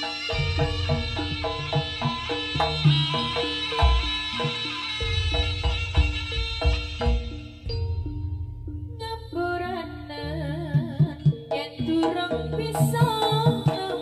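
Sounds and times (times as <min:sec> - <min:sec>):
hand drum strokes: 0:00.0 - 0:14.0
ornamented melody line: 0:00.0 - 0:14.0
low bass: 0:05.2 - 0:10.9.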